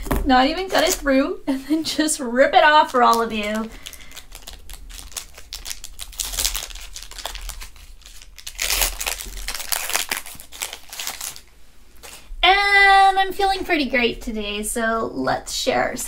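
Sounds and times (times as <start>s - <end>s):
foil wrapper crinkling and tearing: 2.7s - 12.3s.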